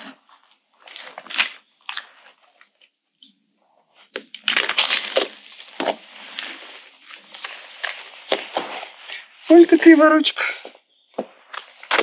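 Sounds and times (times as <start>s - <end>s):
crunching and rustling: 0.0s - 2.9s, 4.1s - 9.3s, 11.2s - 12.0s.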